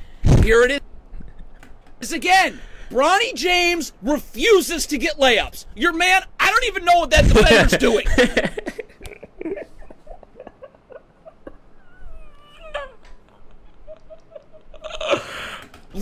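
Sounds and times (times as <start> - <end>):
man's stifled laughter: 7.6 - 15.6.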